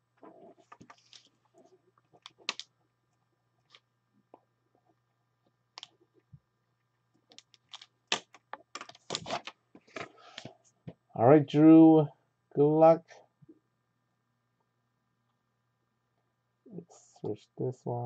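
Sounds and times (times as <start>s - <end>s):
keyboard and mouse clicks: 2.2s - 2.7s.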